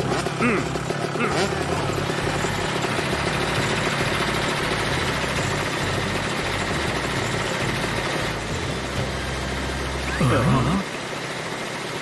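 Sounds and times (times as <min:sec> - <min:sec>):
scooter engine running: 0:00.0 - 0:12.0.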